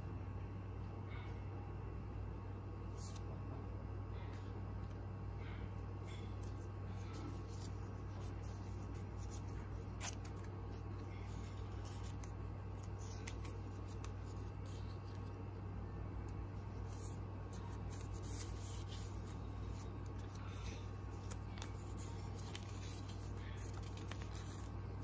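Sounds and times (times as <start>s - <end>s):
steady low hum: 0.0s - 25.0s
paper leaflets rustling: 6.1s - 15.4s, 16.3s - 25.0s.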